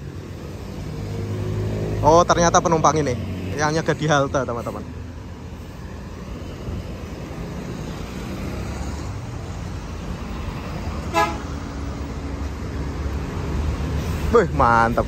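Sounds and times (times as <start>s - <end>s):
traffic passing on wet road: 0.0s - 15.0s
bus engine idling: 9.0s - 15.0s
short horn toot: 11.1s - 11.5s.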